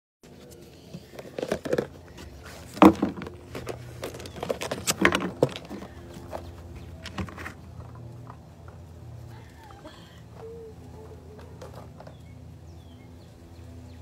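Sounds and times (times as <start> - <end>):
dog claws scraping on plastic: 1.0 - 8.0.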